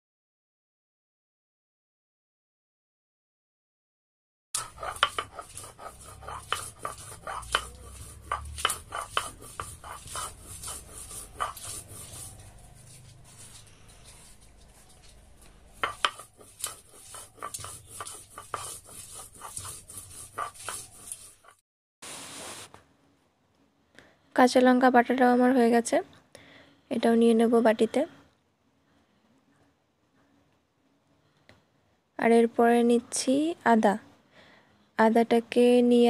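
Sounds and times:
stone roller knocking and grinding: 4.6s - 12.2s, 15.8s - 21.6s.

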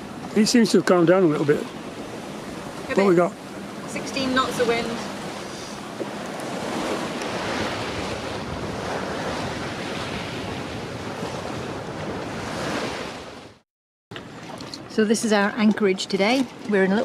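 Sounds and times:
sea water rushing along hull: 0.0s - 17.0s
wind on microphone: 1.7s - 13.6s.

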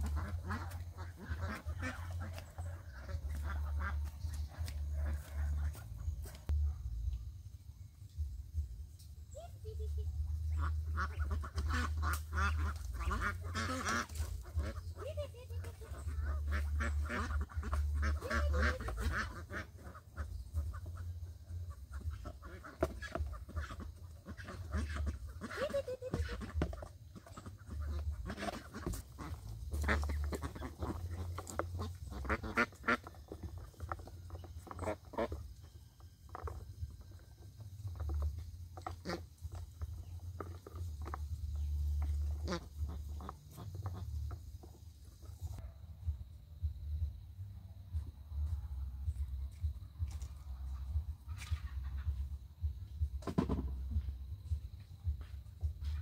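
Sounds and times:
ducks quacking: 0.0s - 6.5s, 9.3s - 37.2s, 37.9s - 45.6s, 50.2s - 52.5s
steady low rumble: 0.0s - 26.6s, 45.2s - 56.0s.

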